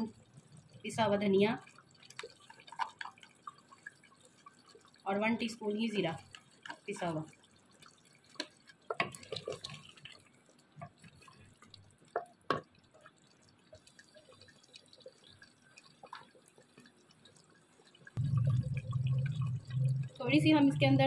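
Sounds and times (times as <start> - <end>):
curry bubbling in a pot: 0.0 - 21.0
wooden spoon stirring: 8.0 - 10.2.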